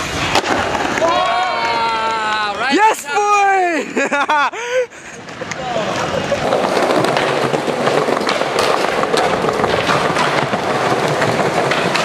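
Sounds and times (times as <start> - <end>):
skateboard wheels rumbling on paving: 0.0 - 2.9, 5.0 - 12.0
wheels clacking over joints: 5.3 - 12.0.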